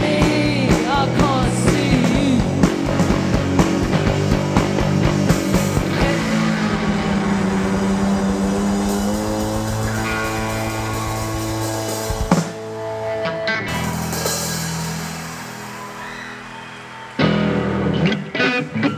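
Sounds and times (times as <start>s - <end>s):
rock music with guitar and drums: 0.0s - 18.9s.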